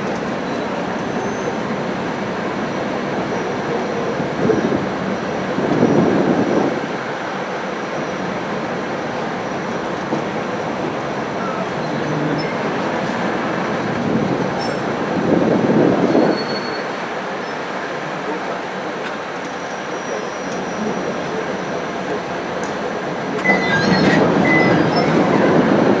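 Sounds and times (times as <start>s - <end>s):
diesel railcar rumbling: 0.0s - 26.0s
faint wheel squeals: 0.4s - 1.7s, 16.2s - 17.6s, 19.5s - 21.9s, 23.4s - 25.6s.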